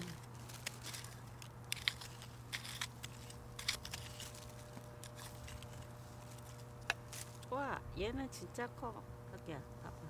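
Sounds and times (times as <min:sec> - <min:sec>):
hand rake scratching dry soil: 0:00.0 - 0:07.6.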